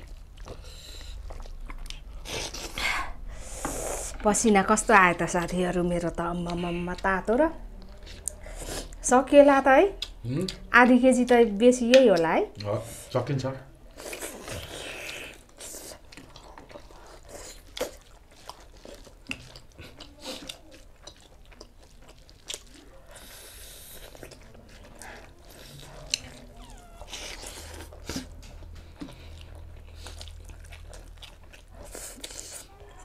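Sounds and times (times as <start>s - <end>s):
person chewing food: 0.0s - 4.7s, 10.0s - 10.7s, 13.9s - 33.0s
hissing breath or slurp: 3.4s - 4.2s.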